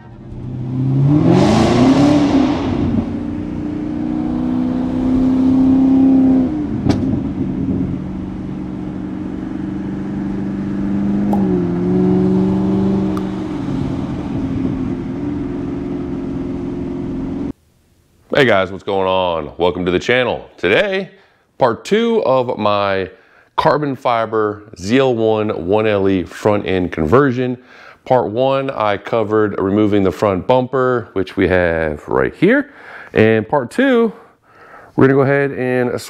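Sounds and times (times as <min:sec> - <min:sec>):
car engine while driving: 0:00.0 - 0:17.5.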